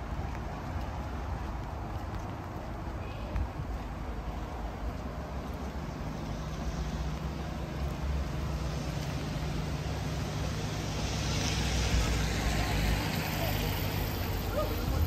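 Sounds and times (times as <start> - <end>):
traffic engine hum: 0.0 - 15.0
tyre hiss on wet road: 5.0 - 15.0.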